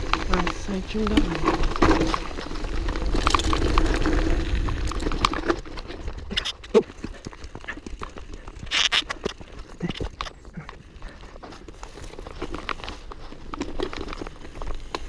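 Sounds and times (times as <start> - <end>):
bike rattling and clicking: 0.0 - 15.0.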